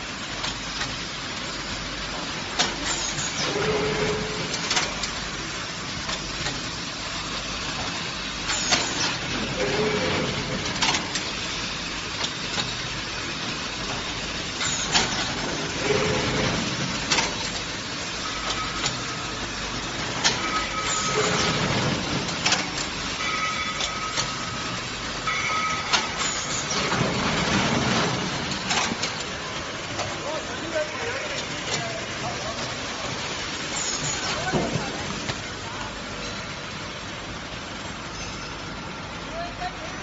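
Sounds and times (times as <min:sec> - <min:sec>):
filling machine running: 0:00.0 - 0:40.0
sharp machine clacks: 0:07.8 - 0:30.8.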